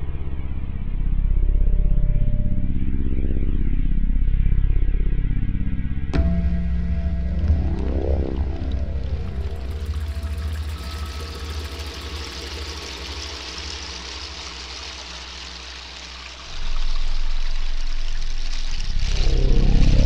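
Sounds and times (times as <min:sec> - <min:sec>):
synthesizer drones: 0:00.0 - 0:20.0
pulsing cluster of tones: 0:06.2 - 0:14.0
hissing noise layer: 0:06.2 - 0:20.0.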